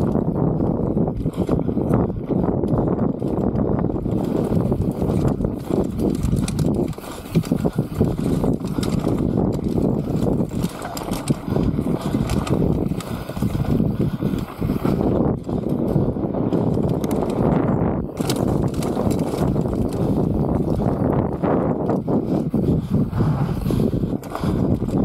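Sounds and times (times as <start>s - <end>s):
bike chain and frame rattling: 0.0s - 25.0s
bike tyres rolling on dirt: 0.0s - 25.0s.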